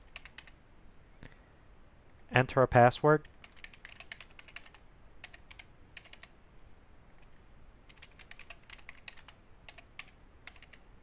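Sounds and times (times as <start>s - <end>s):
typing on computer keyboard: 0.0s - 0.6s, 3.3s - 6.3s, 7.1s - 10.9s.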